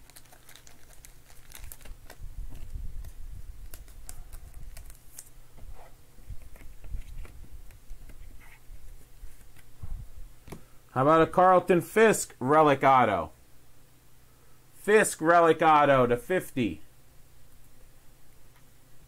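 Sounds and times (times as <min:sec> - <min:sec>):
plastic sleeve crinkling: 0:00.0 - 0:05.4, 0:06.2 - 0:09.7.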